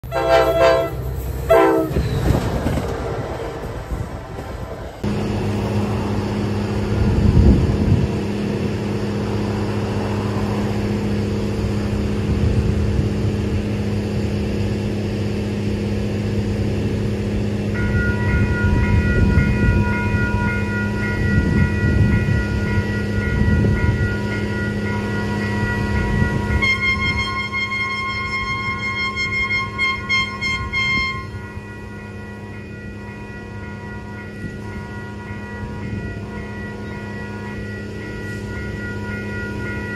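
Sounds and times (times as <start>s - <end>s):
train horn: 0.0s - 2.0s, 25.4s - 31.6s
crossing warning bell ringing: 0.0s - 39.9s.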